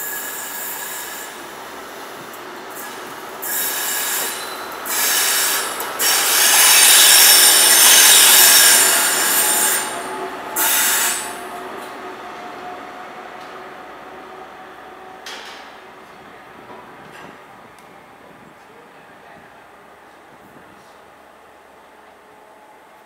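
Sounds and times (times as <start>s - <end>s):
train wheels squealing on rails: 0.0s - 13.6s
train low rumble: 0.0s - 23.0s.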